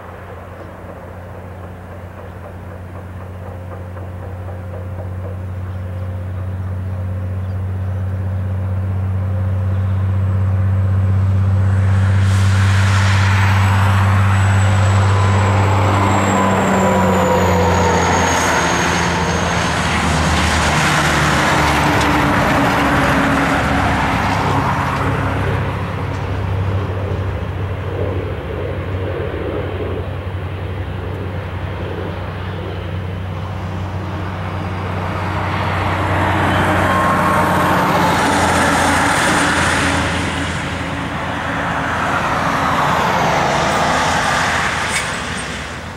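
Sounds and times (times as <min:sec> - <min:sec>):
high engine whine: 0:00.0 - 0:45.9
jet engines roaring: 0:10.0 - 0:45.9
rush of air: 0:11.3 - 0:45.9.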